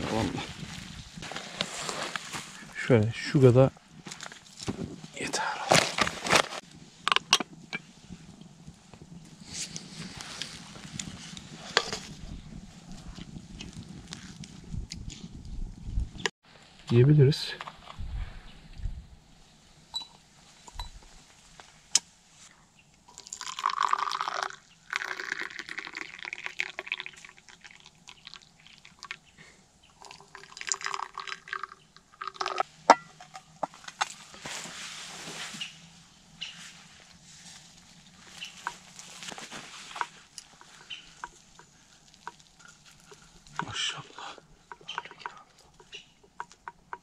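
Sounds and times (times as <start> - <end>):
glass clinks: 19.9 - 21.0
tea pouring into glasses: 23.1 - 29.2, 30.0 - 32.7.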